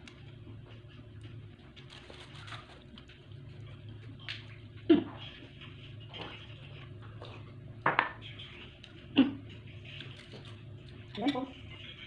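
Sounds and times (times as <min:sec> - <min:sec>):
aluminium foil crinkling: 0:01.8 - 0:03.2.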